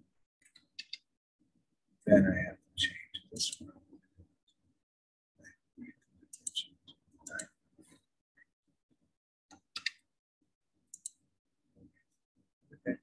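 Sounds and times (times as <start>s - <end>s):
mouse and keyboard clicks: 0.4s - 1.0s, 6.4s - 6.7s, 7.3s - 7.5s, 9.5s - 10.0s, 10.9s - 11.2s.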